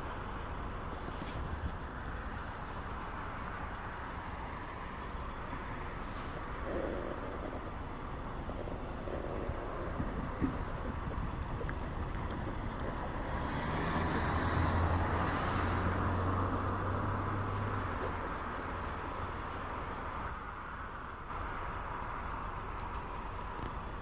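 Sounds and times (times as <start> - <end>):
car driving past: 12.9 - 18.9.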